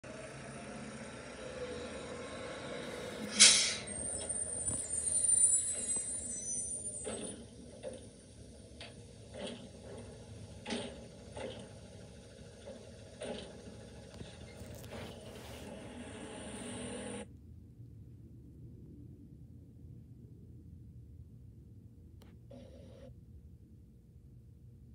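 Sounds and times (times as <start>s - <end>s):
high brake squeal: 0.8s - 7.8s
air brake hiss: 2.4s - 7.0s.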